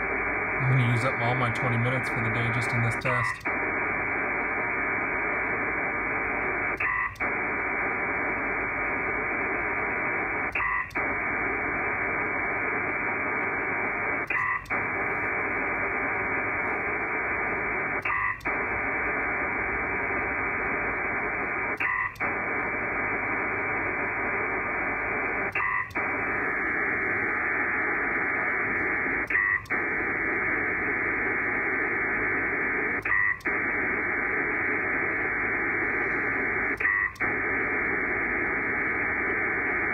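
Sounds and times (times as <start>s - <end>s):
digital data signal hiss: 0.6s - 3.6s.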